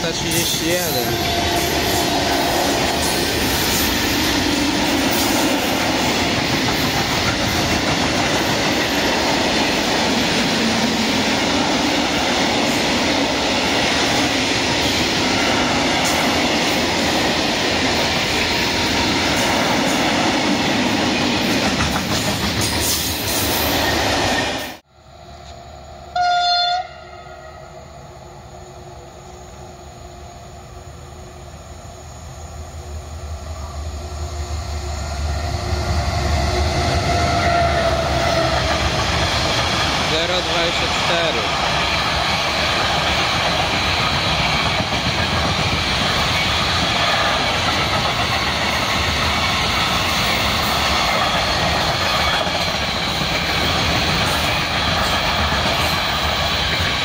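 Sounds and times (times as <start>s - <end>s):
freight train wheels rumbling: 0.0s - 26.1s, 28.0s - 57.0s
locomotive horn blast: 26.1s - 27.7s.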